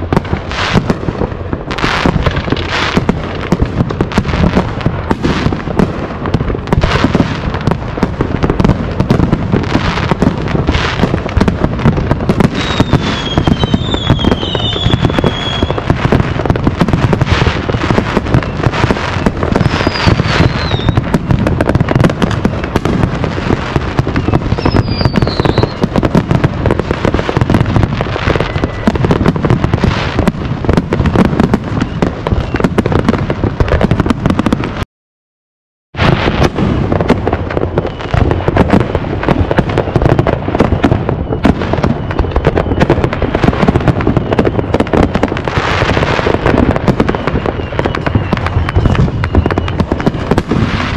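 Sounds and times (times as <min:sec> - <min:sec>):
fireworks popping and banging: 0:00.0 - 0:34.8, 0:36.0 - 0:50.9
firework whistles falling in pitch: 0:12.2 - 0:16.2, 0:17.1 - 0:26.5, 0:27.1 - 0:30.3, 0:31.1 - 0:33.1, 0:36.0 - 0:38.8, 0:39.4 - 0:50.9.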